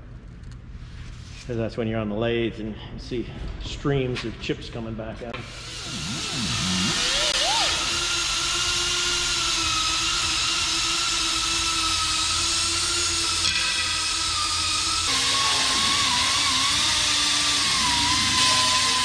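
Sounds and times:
air die grinder whining: 5.4s - 19.0s.

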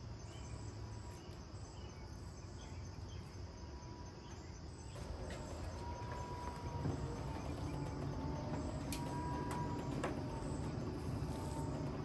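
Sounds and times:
insects chirping: 0.0s - 12.0s
low rumble: 5.0s - 12.0s.

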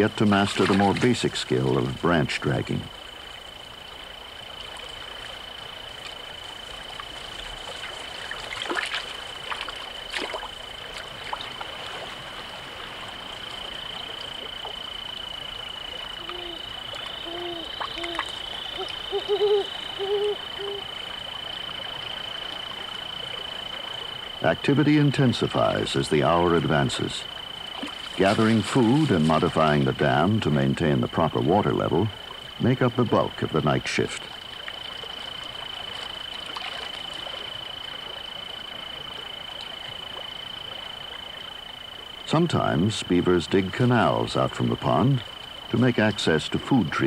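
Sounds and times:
water splashes: 0.0s - 40.8s
short hooting calls: 16.1s - 20.9s.

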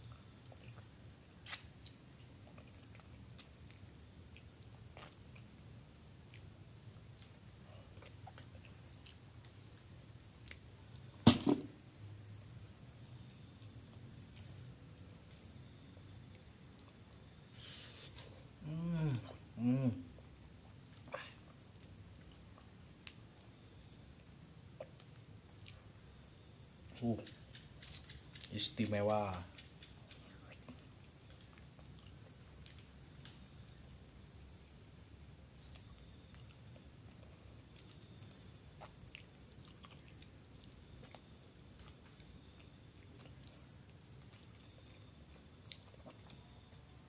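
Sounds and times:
crickets chirping: 0.0s - 47.0s
sharp knock: 11.2s - 11.8s
person humming: 18.6s - 20.1s.

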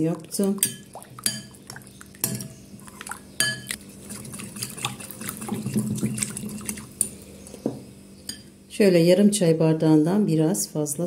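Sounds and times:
liquid sloshing in bowl: 0.0s - 7.2s
metal spoon clinking on glass: 3.4s - 3.8s.

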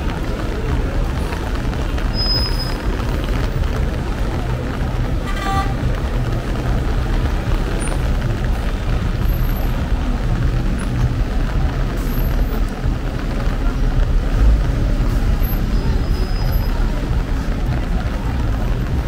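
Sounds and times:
vehicle horn toot: 5.3s - 5.8s.

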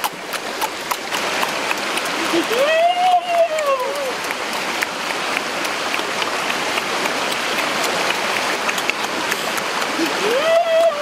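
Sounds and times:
eating clicks close to microphone: 0.0s - 2.4s, 3.8s - 10.2s
mountain stream rushing: 0.0s - 11.0s.

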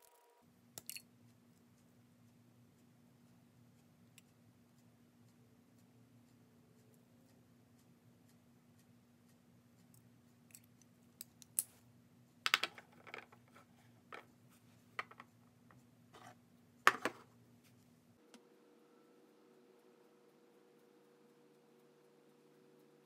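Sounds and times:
faint steady hum: 0.0s - 23.0s
pens clicking and tapping on desk: 12.5s - 14.3s, 15.0s - 15.3s
knocks on wooden desk: 16.9s - 17.2s.

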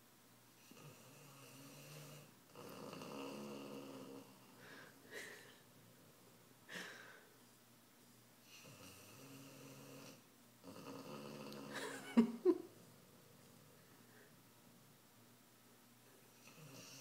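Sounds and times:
dog snoring: 0.6s - 4.5s, 8.4s - 11.8s, 16.4s - 17.0s.

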